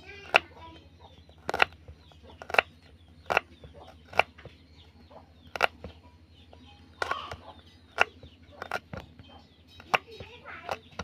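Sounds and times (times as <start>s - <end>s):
knife chopping on wooden board: 1.4s - 4.6s, 5.5s - 6.0s, 7.0s - 11.0s.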